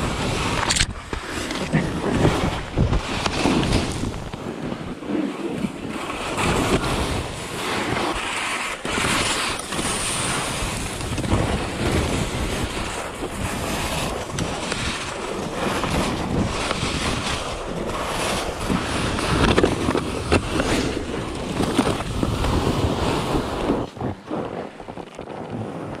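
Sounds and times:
skis scraping over snow: 0.0 - 26.0
wind rushing over microphone: 0.0 - 26.0.

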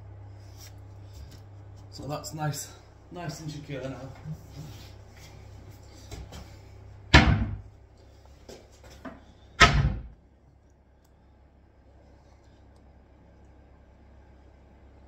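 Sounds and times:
loud knocks: 7.1 - 7.7, 9.6 - 10.1.

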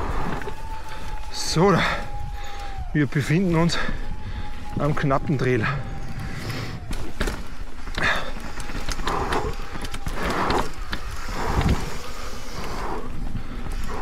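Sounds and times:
bike tyres on dirt trail: 0.0 - 14.0
wind on microphone: 0.0 - 14.0
bike rattling clicks: 6.1 - 14.0.

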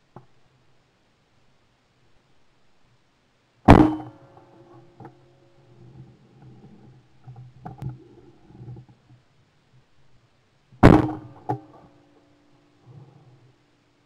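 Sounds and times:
shotgun shot: 3.7 - 4.2, 10.8 - 11.4.

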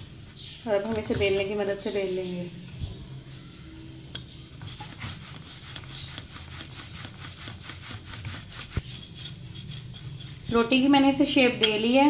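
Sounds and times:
rolling pin rubbing over dough: 3.2 - 12.0.

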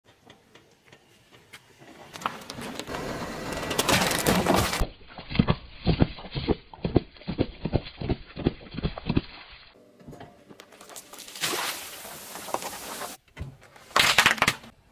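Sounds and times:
drink cartons popping: 13.9 - 14.7.

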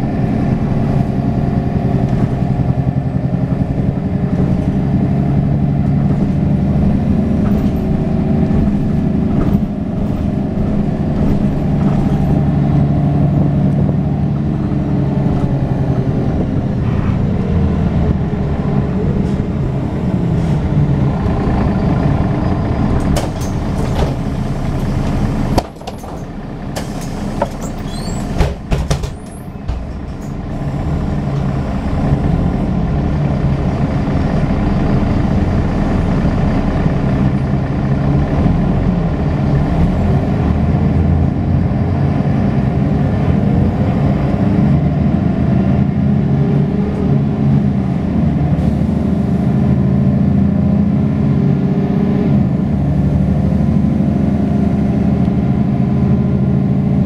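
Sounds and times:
bus diesel engine running: 0.0 - 57.0.

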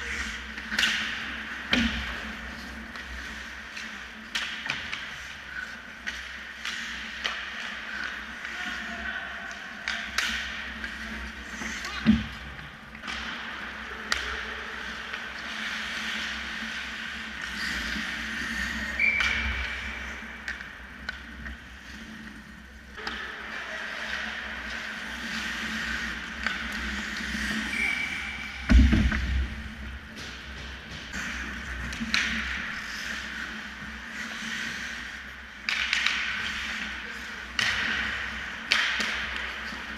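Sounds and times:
sticks and puck clacking: 0.0 - 39.9
skates scraping on ice: 10.2 - 22.5, 23.1 - 39.9
heavy thud: 28.6 - 31.1.

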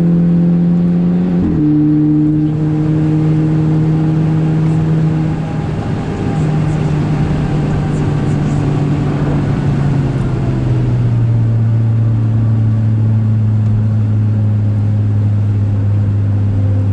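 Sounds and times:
car engine running loud: 0.0 - 16.9
road and wind noise: 0.0 - 16.9.

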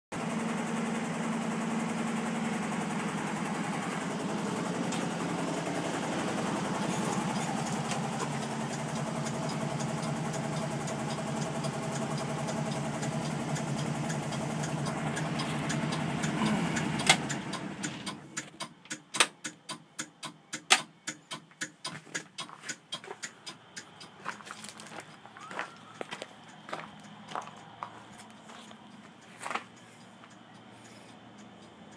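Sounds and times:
car engine idling: 0.2 - 31.9
sharp irregular clicks and knocks: 7.1 - 25.4, 26.0 - 31.9.

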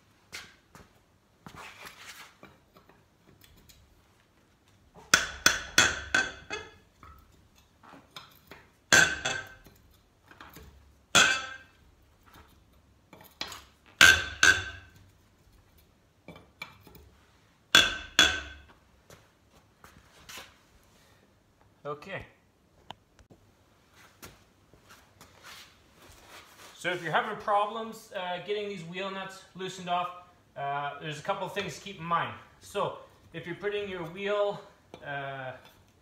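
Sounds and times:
wrench clinking on lug nuts: 5.2 - 7.6.

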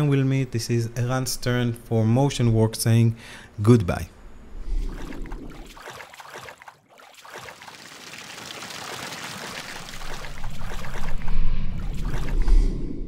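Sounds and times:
rushing flowing water: 5.0 - 12.4.

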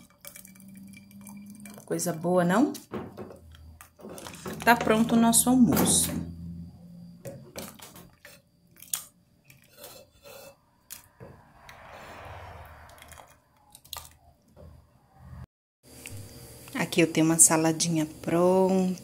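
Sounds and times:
wet stirring: 0.0 - 5.2.

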